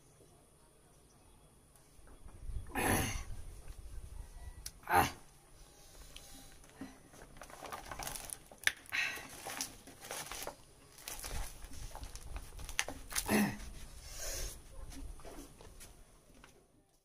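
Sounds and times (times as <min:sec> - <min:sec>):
leaf crumpling: 0:07.2 - 0:13.6.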